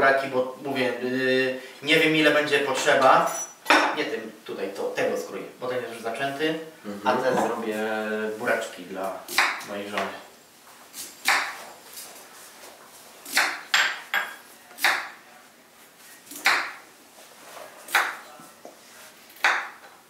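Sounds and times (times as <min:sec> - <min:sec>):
knife chopping on wooden board: 0:09.3 - 0:10.1, 0:11.2 - 0:11.6, 0:13.3 - 0:15.1, 0:16.3 - 0:16.8, 0:19.4 - 0:19.9.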